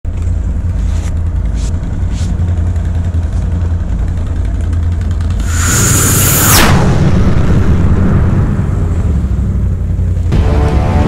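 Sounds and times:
engine idling rumble: 0.0 - 11.0
rising hiss: 5.4 - 8.0.

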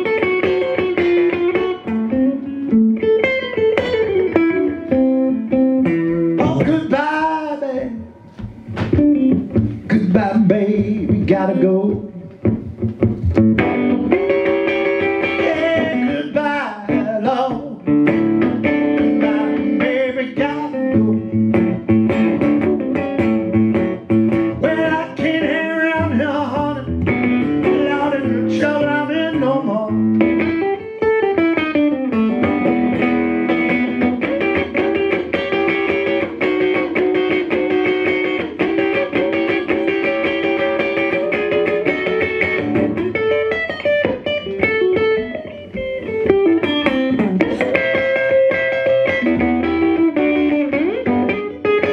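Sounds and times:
fingerpicked resonator guitar blues: 0.0 - 51.9
person singing: 6.4 - 8.4, 9.4 - 12.5, 14.7 - 21.9, 24.5 - 31.1, 46.6 - 50.6.

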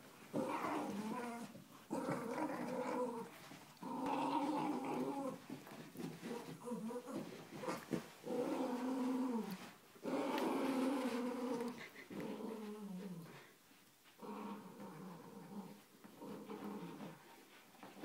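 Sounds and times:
dogs growling in play: 0.3 - 18.0.

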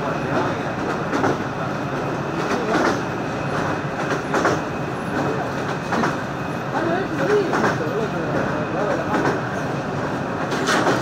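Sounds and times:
train rumble and rattle: 0.0 - 11.0
train wheels clacking: 0.1 - 11.0.

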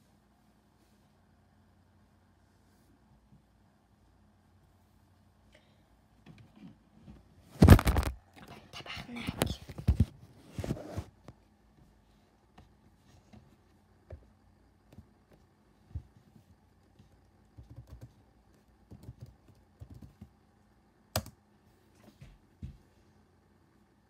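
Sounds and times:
computer keyboard typing: 17.5 - 18.2, 18.8 - 20.3, 21.2 - 21.4.

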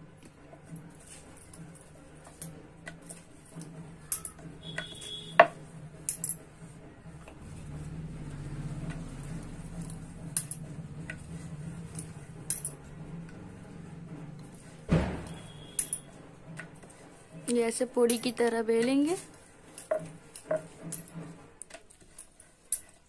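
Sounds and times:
loud thump: 14.9 - 15.4
light clicks and clinks: 18.0 - 23.0.

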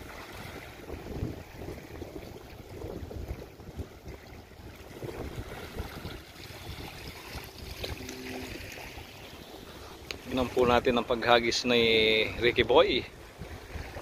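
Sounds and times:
small waves lapping: 0.0 - 14.0
wind gusting on microphone: 0.0 - 14.0.

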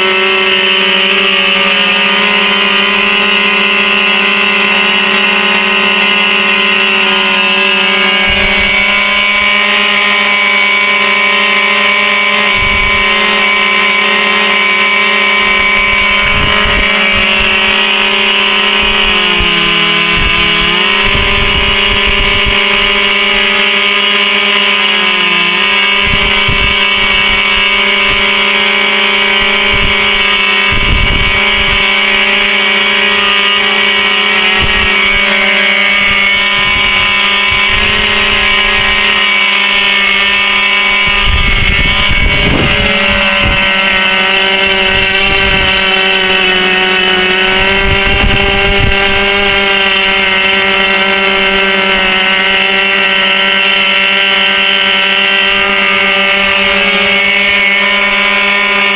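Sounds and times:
model aircraft engines running: 0.0 - 58.9.

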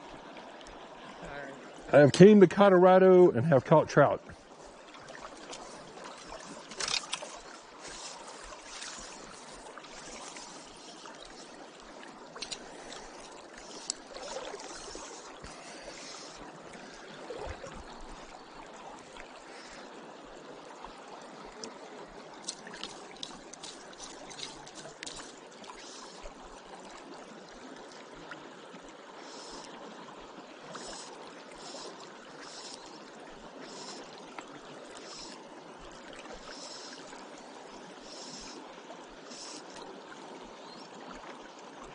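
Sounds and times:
river water rushing: 3.3 - 28.5
faint ticks: 5.4 - 14.1.

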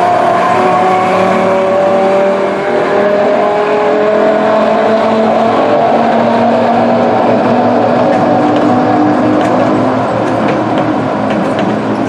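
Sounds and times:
train wheels rumbling on rail: 4.0 - 12.0.

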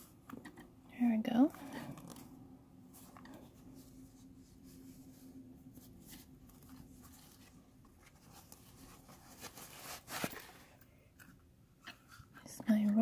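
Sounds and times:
cloth bag rustling: 2.9 - 10.8.

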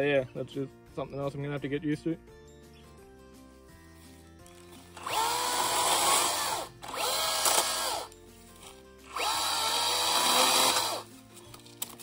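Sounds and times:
electric chainsaw cutting log: 4.8 - 8.1, 9.1 - 11.1.

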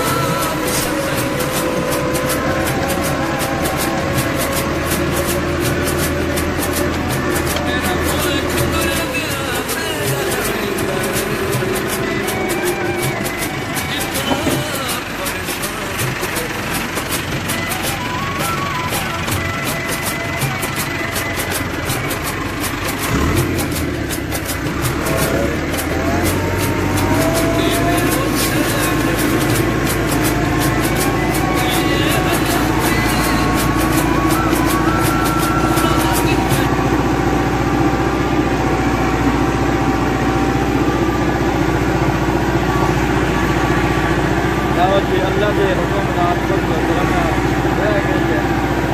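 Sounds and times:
tractor diesel engine running: 0.0 - 48.9.

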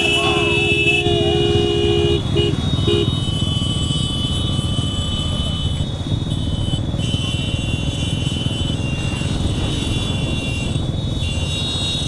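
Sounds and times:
vehicle rumble: 0.0 - 12.0.

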